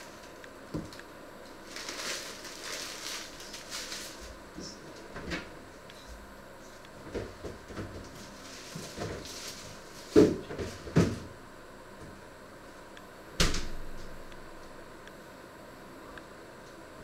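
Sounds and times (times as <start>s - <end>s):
kitchen knocks and thuds: 10.1s - 11.3s.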